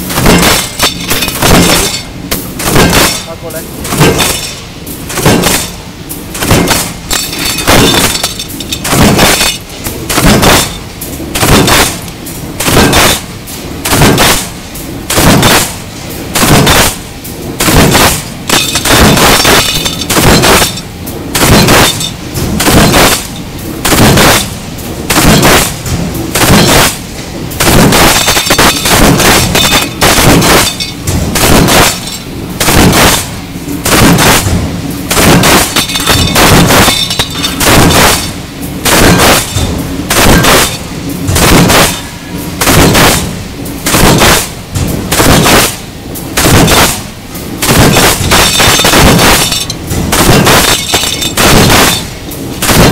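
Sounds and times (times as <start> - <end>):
punch press stamping metal: 0.0 - 17.0, 17.6 - 52.9.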